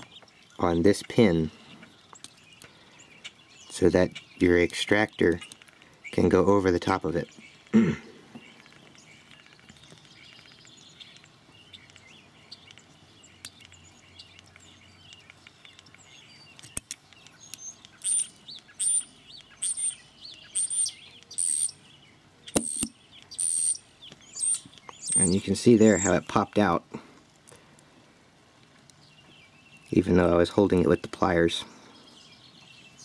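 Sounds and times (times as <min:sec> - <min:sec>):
songbird chirping: 0:00.0 - 0:33.0
sharp metal clicks: 0:22.5 - 0:25.3.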